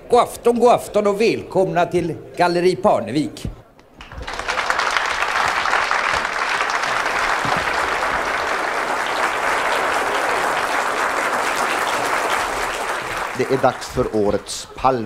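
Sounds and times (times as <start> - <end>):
audience applauding: 4.0 - 14.8.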